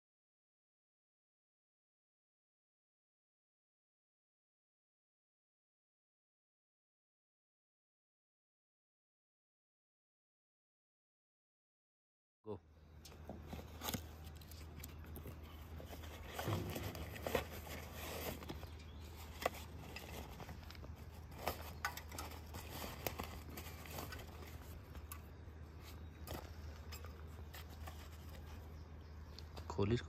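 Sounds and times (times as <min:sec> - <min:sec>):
cardboard and fabric rustling: 0:13.2 - 0:28.8.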